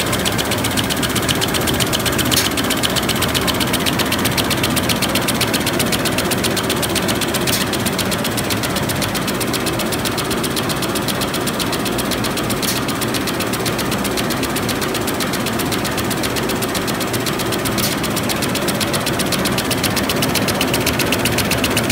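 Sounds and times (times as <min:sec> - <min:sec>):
sharp machine click: 0:00.0 - 0:08.1, 0:10.4 - 0:21.9
rapid clatter of rolls: 0:00.0 - 0:21.9.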